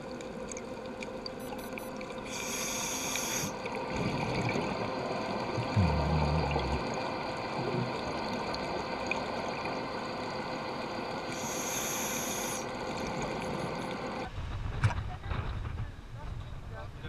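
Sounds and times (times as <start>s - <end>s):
scuba inhale hiss: 2.3s - 3.6s, 11.3s - 12.7s
underwater hiss: 2.3s - 3.6s, 11.3s - 12.7s
scuba exhale burble: 3.9s - 8.4s.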